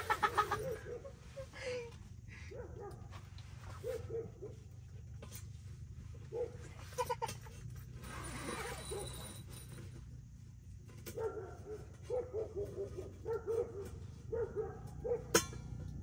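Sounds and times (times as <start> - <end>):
dog yelping: 6.2 - 6.7, 8.6 - 9.2, 11.2 - 15.3.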